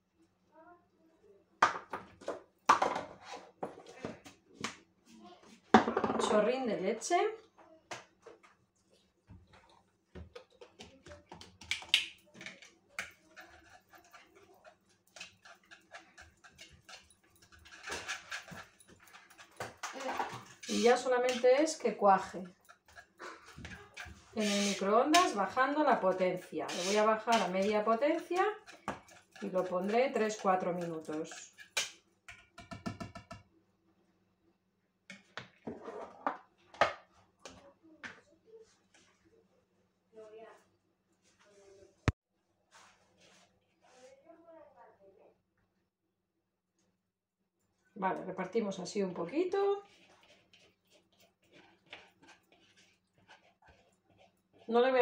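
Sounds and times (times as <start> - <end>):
kitchenware knocks and clatters: 1.6 - 4.2, 5.7 - 6.5, 15.1 - 21.1, 27.2 - 33.5
metal whisk beating in plastic bowl: 10.3 - 33.4, 48.1 - 55.0.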